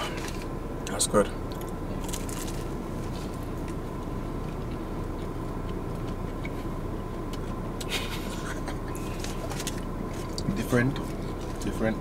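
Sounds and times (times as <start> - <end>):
car engine idling: 0.0 - 12.0
faint steady whine: 0.0 - 12.0
soft chewing clicks: 3.6 - 8.0.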